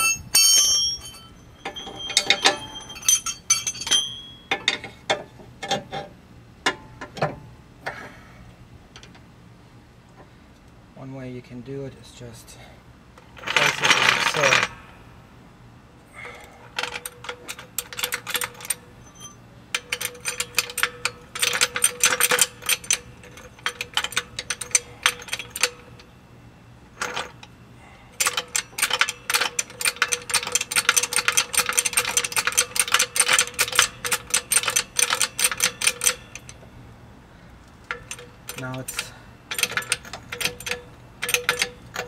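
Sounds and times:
wrench clicking rapidly: 28.2 - 36.4.

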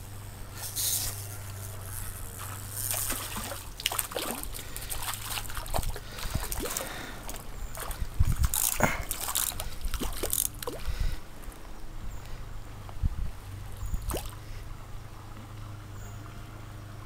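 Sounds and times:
stream water splashing and trickling: 2.3 - 11.6, 13.6 - 14.8
knocks and splashes: 2.9 - 10.9, 14.0 - 14.4.

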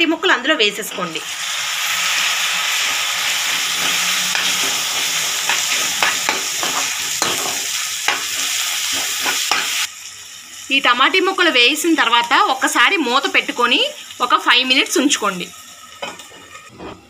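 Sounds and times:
onions sizzling in oil: 0.0 - 16.7
metal spoon scraping pan: 2.2 - 9.8, 16.0 - 17.0.

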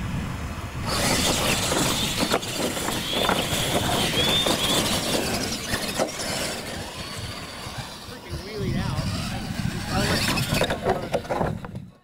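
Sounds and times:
electric motors whining: 0.8 - 12.0
tyres churning dirt: 0.8 - 12.0
knocks and rattles: 10.2 - 12.0.

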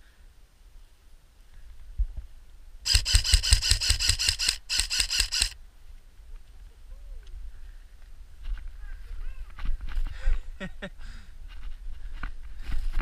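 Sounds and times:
airsoft gun firing rapid shots: 2.9 - 5.6
gearbox whine: 2.9 - 5.6.

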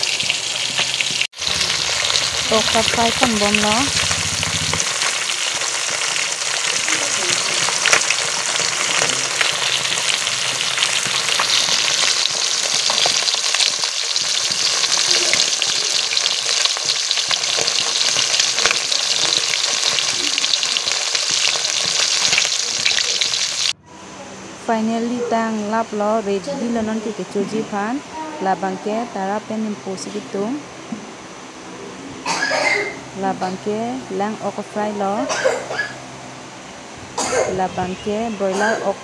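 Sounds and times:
fish frying in hot oil: 0.0 - 23.8.

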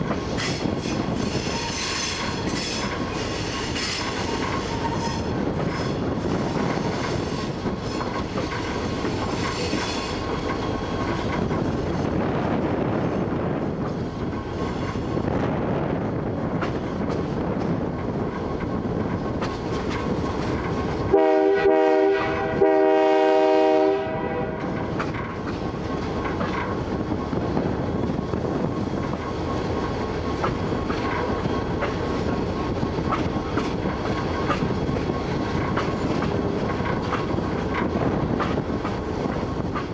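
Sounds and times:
model train wheels on track: 0.0 - 21.6, 24.5 - 39.9
train horn blasts: 21.1 - 24.9.

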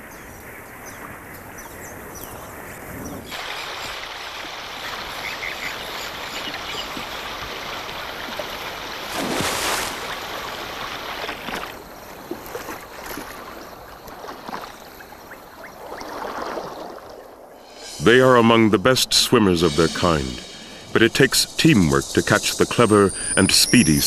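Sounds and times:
water splashing and lapping: 3.2 - 18.0.

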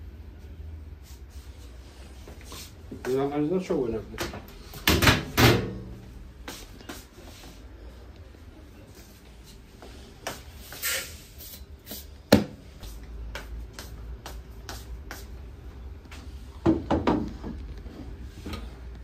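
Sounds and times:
footsteps on tile: 9.0 - 16.3.

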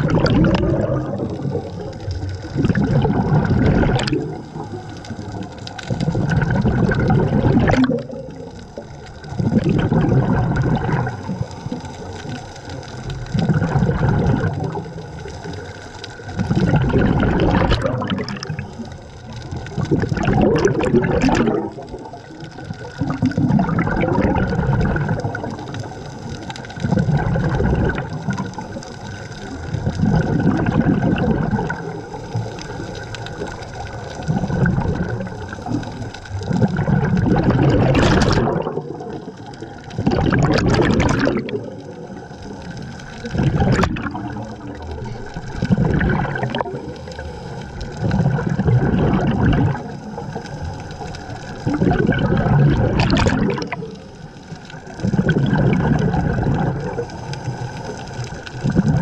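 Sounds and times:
bubbles gurgling underwater: 0.0 - 59.0
diver breathing through regulator: 46.5 - 48.6.

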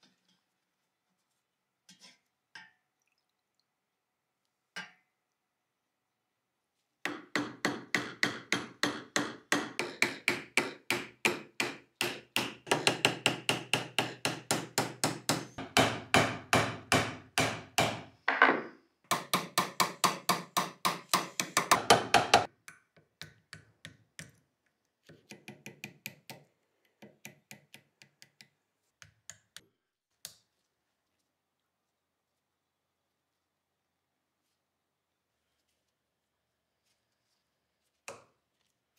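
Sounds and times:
hammer tapping wooden dowel: 7.0 - 24.4, 25.1 - 29.6.

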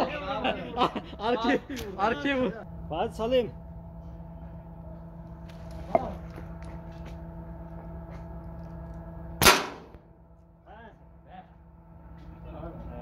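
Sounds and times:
steady low hum: 0.0 - 13.0
air rifle shot: 9.4 - 10.0.

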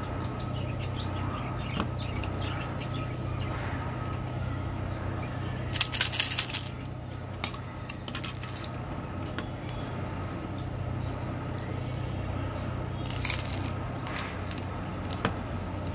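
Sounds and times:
steady low hum: 0.0 - 15.9
candy beans clattering from plastic tube: 5.8 - 6.8.

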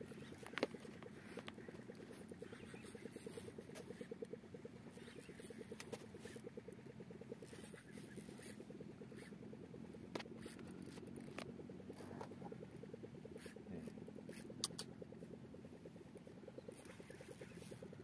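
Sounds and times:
boat engine idling: 0.0 - 18.0
sharp clicks: 14.3 - 15.0.

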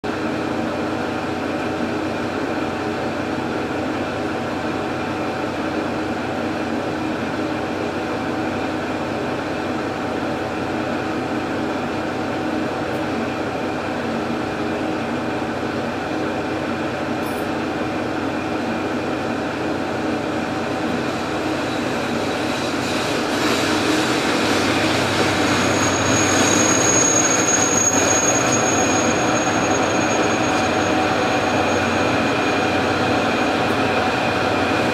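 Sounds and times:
train approaching: 0.1 - 34.9
high steady squeal: 21.2 - 34.9.

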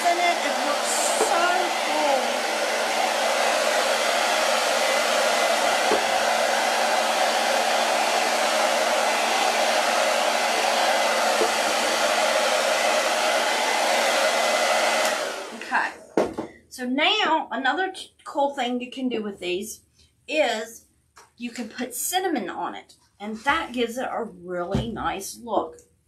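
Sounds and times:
hair dryer blowing: 0.0 - 16.5.

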